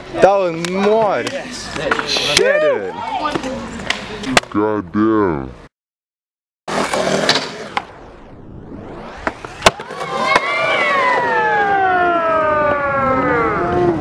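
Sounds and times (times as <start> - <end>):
skateboard wheels rolling: 6.7 - 8.0, 8.7 - 14.0
long high falling tone: 7.8 - 14.0.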